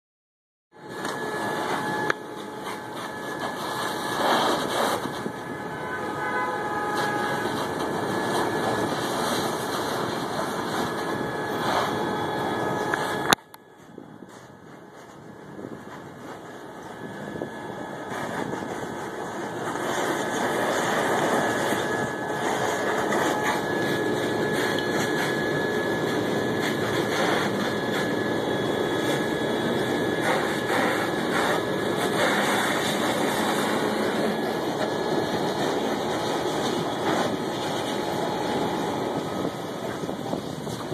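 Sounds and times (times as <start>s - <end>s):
rushing noise: 0.8s - 13.3s, 14.6s - 40.9s
engines droning: 0.8s - 13.6s, 15.7s - 40.9s.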